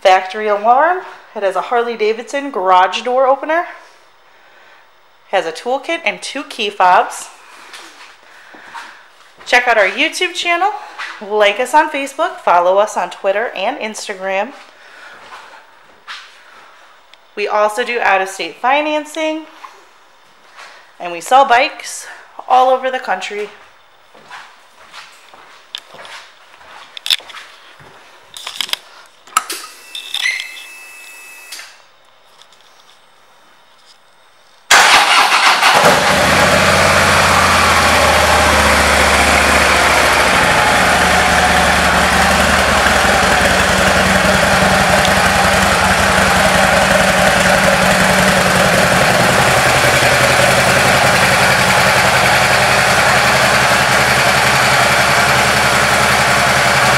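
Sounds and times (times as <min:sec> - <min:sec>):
motorcycle engine starting and idling: 0:34.7 - 0:56.9.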